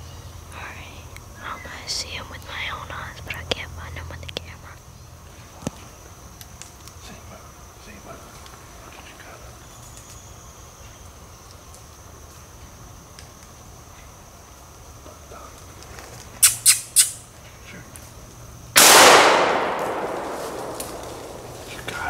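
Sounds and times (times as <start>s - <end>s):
sharp hissy sounds: 16.4s - 17.3s
shotgun shot echoing: 18.8s - 21.9s.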